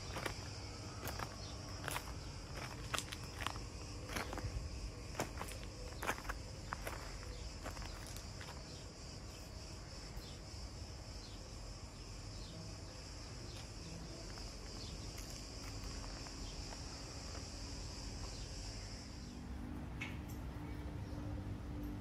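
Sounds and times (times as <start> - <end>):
footsteps on gravel: 0.0 - 8.8, 13.5 - 17.7
insects buzzing: 0.0 - 22.0.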